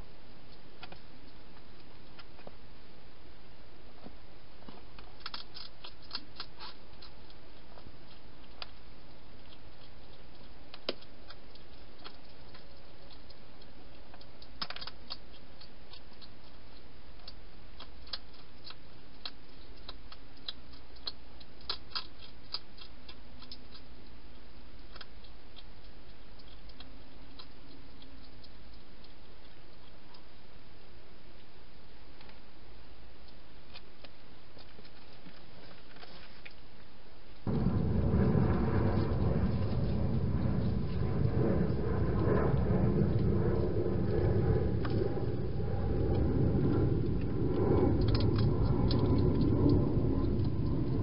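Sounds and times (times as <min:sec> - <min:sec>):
hedgehog crunching food: 0:00.5 - 0:03.0, 0:03.9 - 0:51.0
steady hiss: 0:35.5 - 0:46.0.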